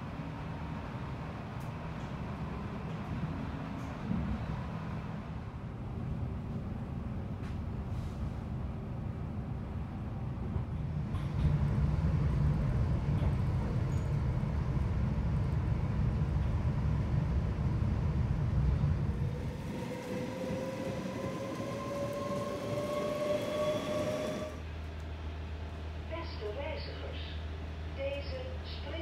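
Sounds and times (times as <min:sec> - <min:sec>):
train rumbling: 0:00.0 - 0:29.0
train motors whining: 0:19.0 - 0:24.6.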